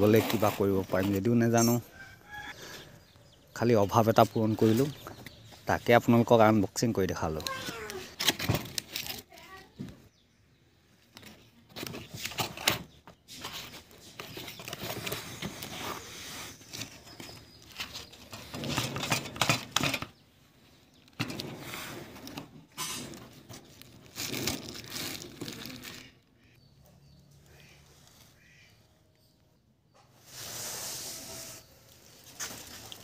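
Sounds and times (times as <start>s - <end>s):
plastic wrapping crinkling: 7.4s - 9.7s, 23.1s - 26.2s, 31.8s - 33.0s.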